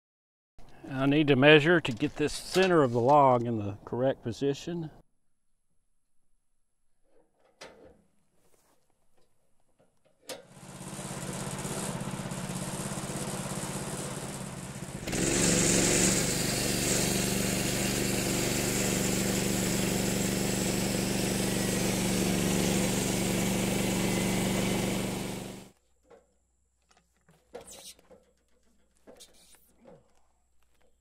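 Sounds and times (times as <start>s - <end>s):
small gas engine running: 10.4s - 25.7s.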